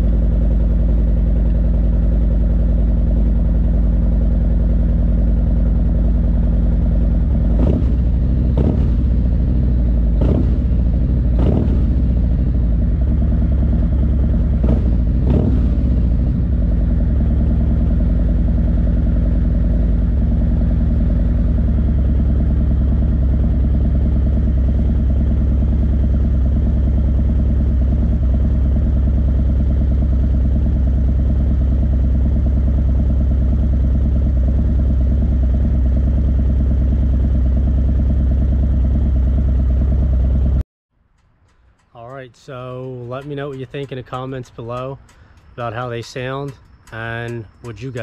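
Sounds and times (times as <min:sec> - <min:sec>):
motorcycle engine idling: 0:00.0 - 0:48.0.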